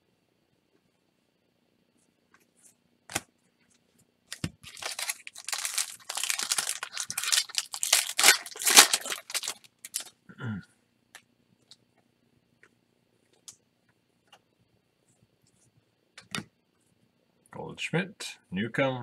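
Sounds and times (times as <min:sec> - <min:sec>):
foil wrapper tearing and crinkling: 0:04.3 - 0:10.1.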